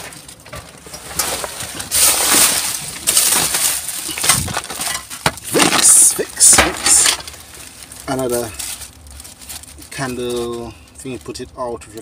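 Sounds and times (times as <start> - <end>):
plastic bags rustling and crinkling: 0.0 - 12.0.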